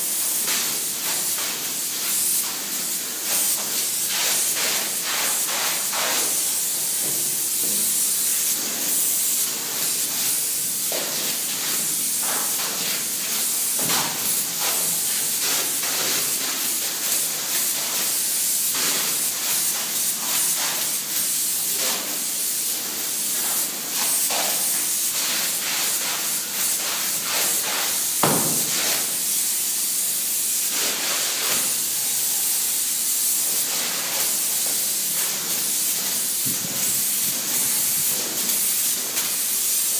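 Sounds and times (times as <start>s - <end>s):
foam spray gun hissing: 0.0s - 39.9s
loud knock: 28.2s - 28.8s.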